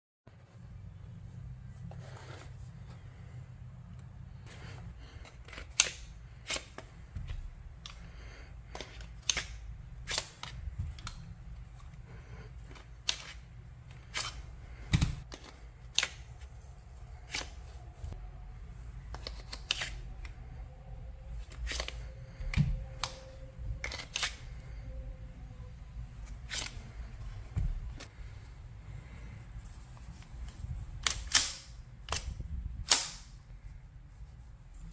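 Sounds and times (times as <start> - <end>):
steady low hum: 0.3 - 34.9
plastic holster clicks and snaps: 8.7 - 11.2, 31.0 - 33.4.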